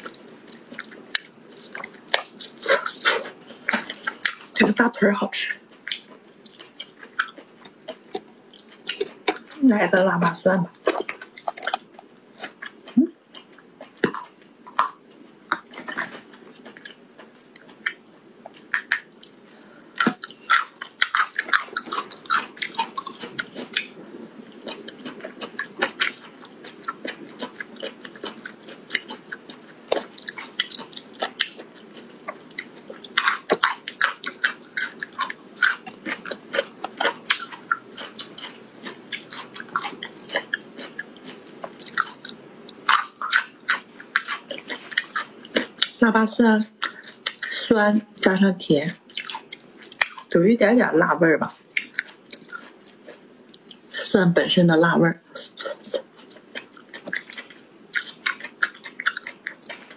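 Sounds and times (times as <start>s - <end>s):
person chewing food: 0.0s - 50.4s, 51.4s - 54.1s, 55.2s - 59.9s
crunchy bites: 10.8s - 46.0s.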